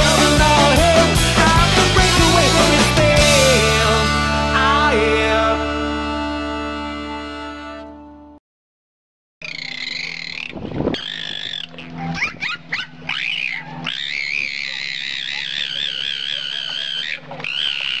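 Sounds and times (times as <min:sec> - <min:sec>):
dolphin squealing: 0:09.4 - 0:18.0
dolphin rising squeaks: 0:09.5 - 0:18.0.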